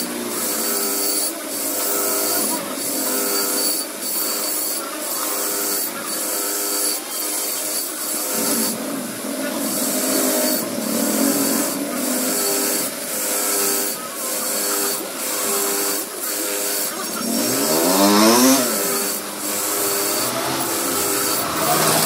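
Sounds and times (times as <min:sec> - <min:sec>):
wire wheel brush scouring metal: 0:00.0 - 0:22.0.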